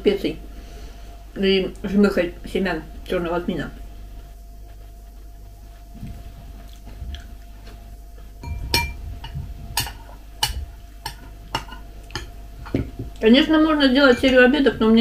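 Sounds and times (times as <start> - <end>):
chewing and mouth sounds: 4.2 - 8.4
spoon clinking against glass bowl: 8.4 - 9.0, 14.0 - 14.5.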